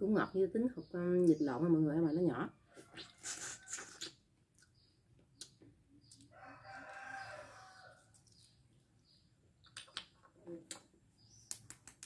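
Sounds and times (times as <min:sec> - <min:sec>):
rooster crowing: 0:06.3 - 0:08.1.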